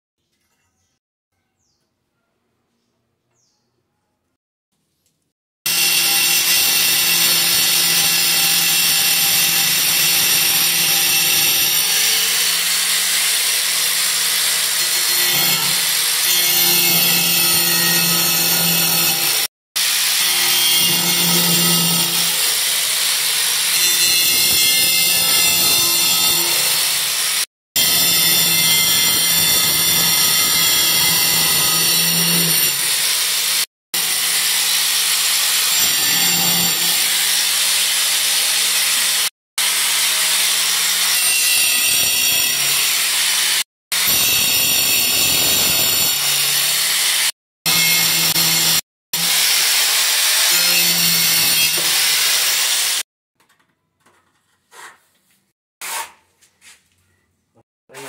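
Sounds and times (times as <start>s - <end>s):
angle grinder cutting tile: 5.7s - 53.1s.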